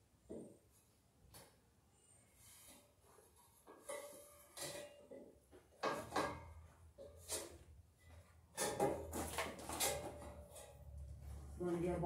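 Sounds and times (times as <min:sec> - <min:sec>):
handling knocks and clatters: 0:03.2 - 0:11.9.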